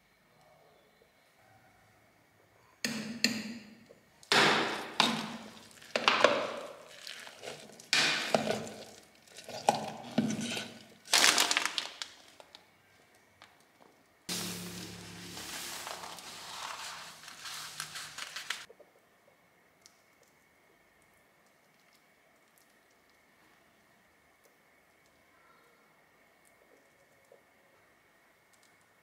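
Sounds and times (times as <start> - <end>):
wet crunchy rustling of vegetables: 4.3 - 12.6, 14.3 - 18.7
plastic package crinkling: 5.0 - 12.6, 14.4 - 18.7.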